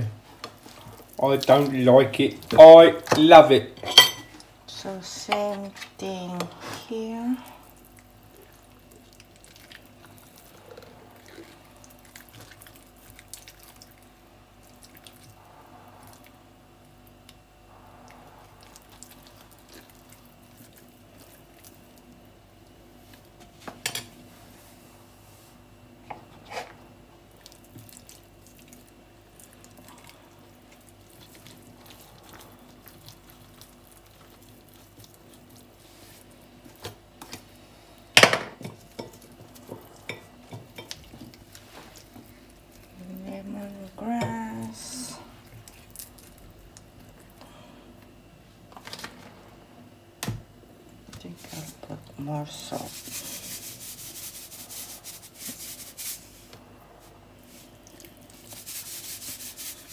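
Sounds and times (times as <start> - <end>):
wet squishing of hands: 7.5 - 15.4, 18.6 - 22.3, 27.3 - 37.7, 38.6 - 43.5, 45.4 - 48.1, 57.4 - 59.9.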